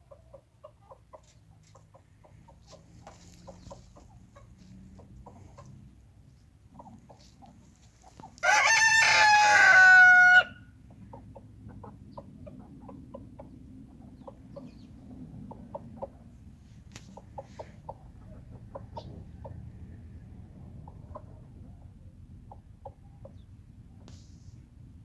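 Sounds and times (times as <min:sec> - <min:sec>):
hens clucking: 0:00.0 - 0:08.6, 0:09.2 - 0:24.1
rooster crowing: 0:08.4 - 0:10.7.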